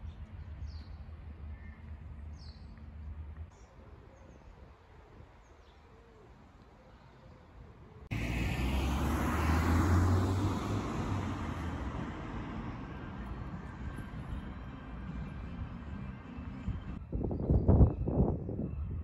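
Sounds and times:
vehicle passing: 0:08.1 - 0:17.0.

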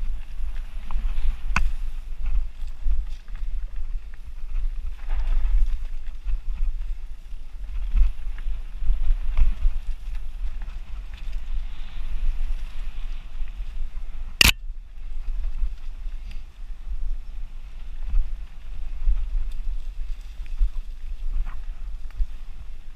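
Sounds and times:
bike rattles and clicks: 0:00.0 - 0:16.4
wind rumbling on microphone: 0:00.0 - 0:22.9.

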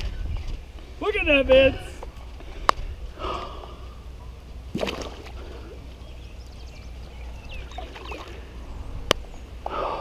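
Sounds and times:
fish splashing in water: 0:04.7 - 0:05.8, 0:07.7 - 0:08.4
soft water movement: 0:07.6 - 0:08.8.

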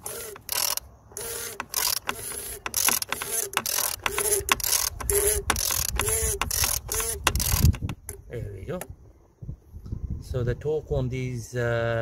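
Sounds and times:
torque wrench ratcheting clicks: 0:00.0 - 0:08.2.

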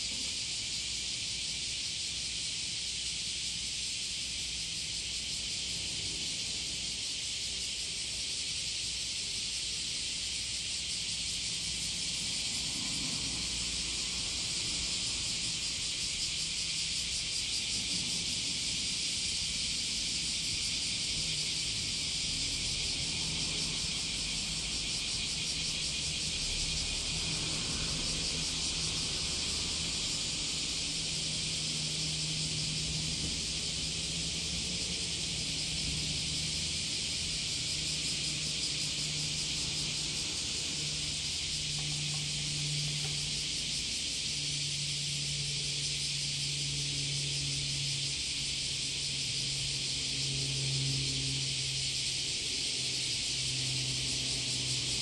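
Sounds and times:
high-pitched outdoor hiss: 0:00.0 - 0:55.0.

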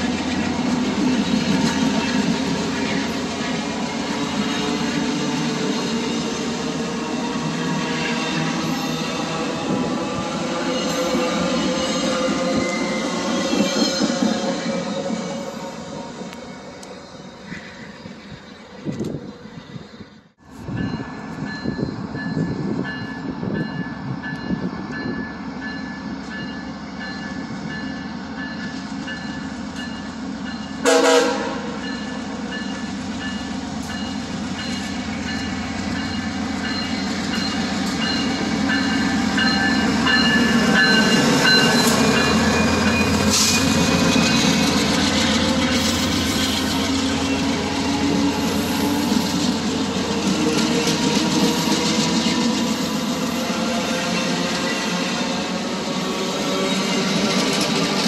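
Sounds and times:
passenger train rumbling past: 0:00.0 - 0:58.0
train horn blast: 0:30.8 - 0:31.8.

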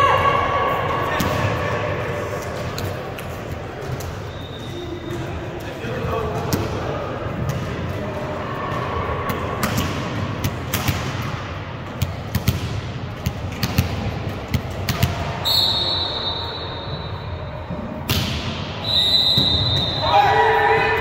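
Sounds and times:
background hubbub: 0:00.0 - 0:18.9
volleyballs thumping on gym floor: 0:09.6 - 0:15.4.

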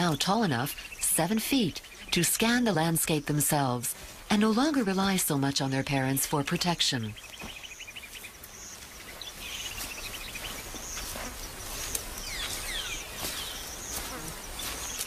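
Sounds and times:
small birds chirping: 0:00.0 - 0:15.0
steady outdoor hiss: 0:00.0 - 0:15.0.

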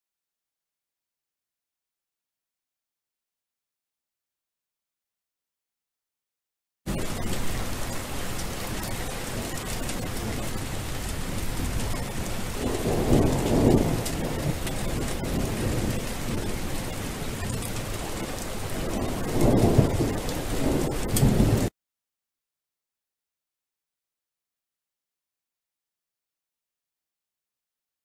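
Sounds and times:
low rolls of thunder: 0:06.9 - 0:21.7
steady rain falling: 0:06.9 - 0:21.7.

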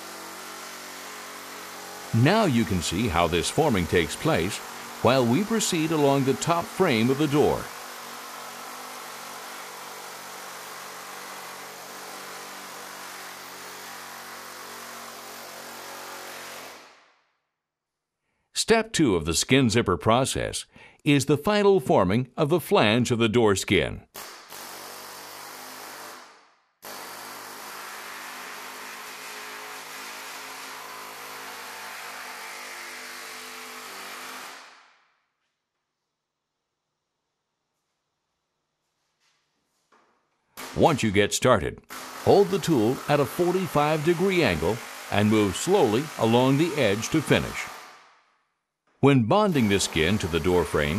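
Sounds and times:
pneumatic air hammer running: 0:00.0 - 0:02.2, 0:03.7 - 0:17.0, 0:41.9 - 0:48.2, 0:49.6 - 0:50.8.

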